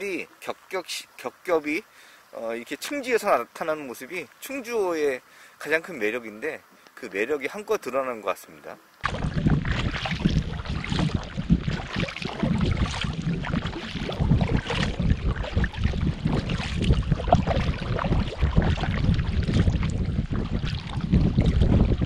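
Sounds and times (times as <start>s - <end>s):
paddle splashing water: 9.0s - 22.0s
wind rumble on microphone: 9.0s - 22.0s.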